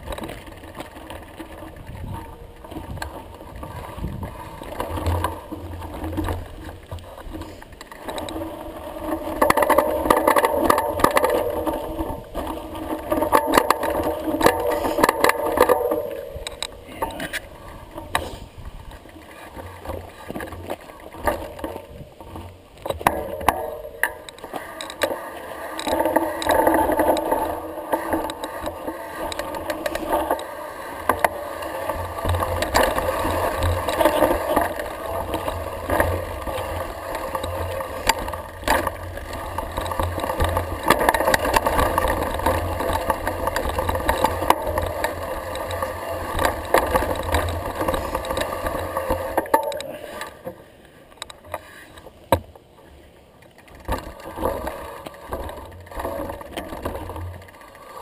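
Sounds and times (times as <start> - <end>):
bike tyre noise and rattle: 0.0 - 58.0
wheels knocking on rocks: 0.0 - 58.0.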